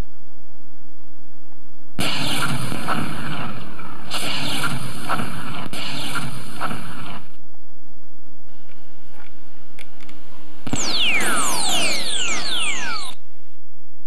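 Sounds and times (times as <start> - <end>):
sharp clashing cracks: 2.0 - 7.4
lightsaber electric buzz: 10.7 - 13.2.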